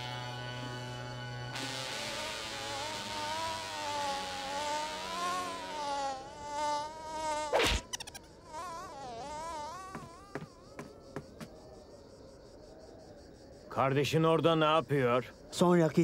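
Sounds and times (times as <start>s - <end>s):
cartoon fly buzzing: 0.0s - 10.9s.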